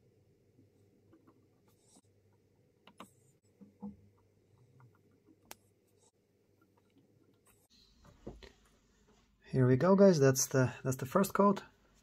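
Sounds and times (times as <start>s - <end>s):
faint needle clicks and taps: 1.1s - 9.2s.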